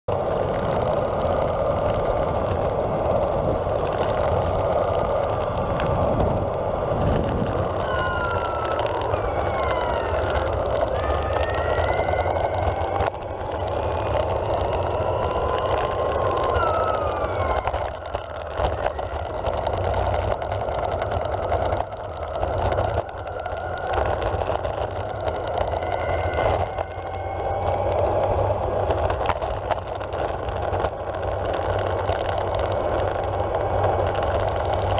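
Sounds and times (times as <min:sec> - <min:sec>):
skateboard wheels rumbling on asphalt: 0:00.1 - 0:34.9.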